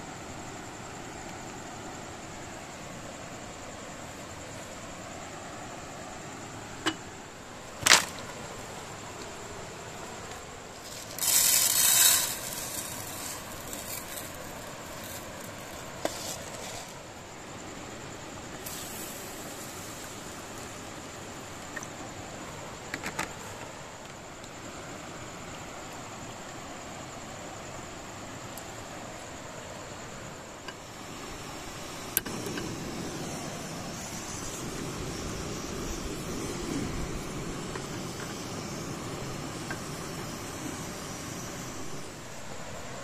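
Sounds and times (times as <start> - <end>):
rice poured into metal tin: 10.8 - 17.0.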